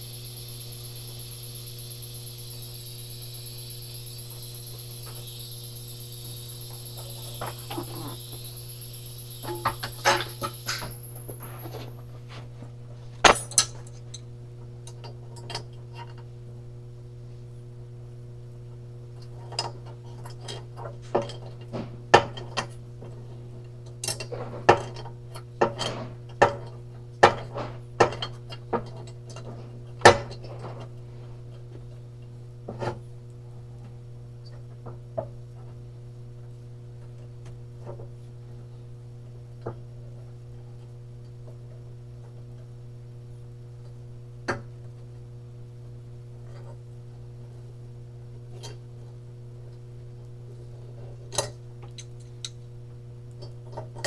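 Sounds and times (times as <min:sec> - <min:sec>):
steady low hum: 0:00.0 - 0:19.6.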